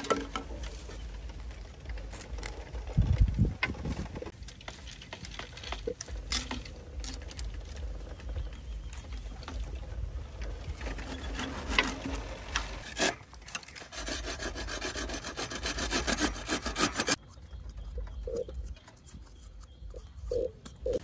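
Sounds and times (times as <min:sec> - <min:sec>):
bow saw cutting bamboo: 0:10.9 - 0:17.2.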